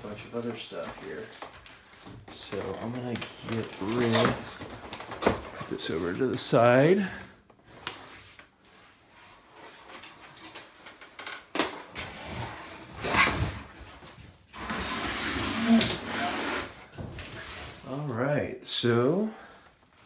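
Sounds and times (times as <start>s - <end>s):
packaging rustling: 0.0s - 6.6s.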